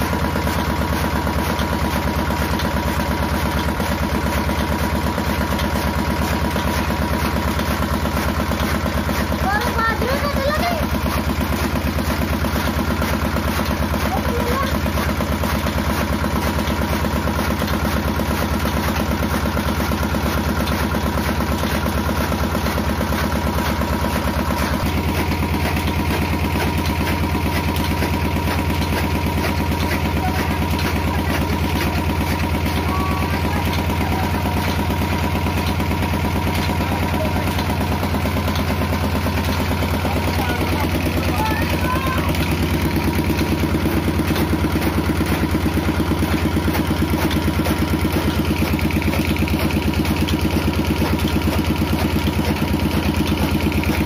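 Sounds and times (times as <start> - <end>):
small engine running: 0.0 - 54.0.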